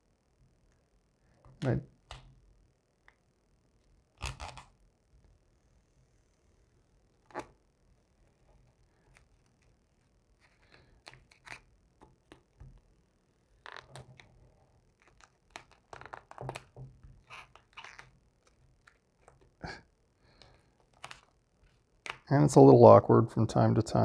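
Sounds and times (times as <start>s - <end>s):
vinyl film crinkling: 13.6s - 19.5s.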